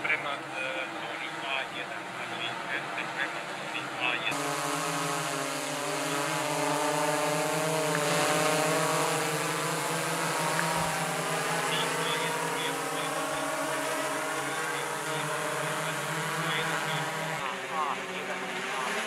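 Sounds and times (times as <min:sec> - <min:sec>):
drone propellers buzzing: 0:00.0 - 0:19.0.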